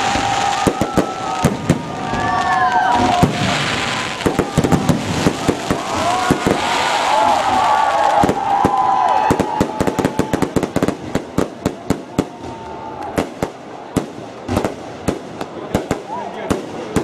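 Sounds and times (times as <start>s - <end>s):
fireworks popping and banging: 0.0s - 17.0s.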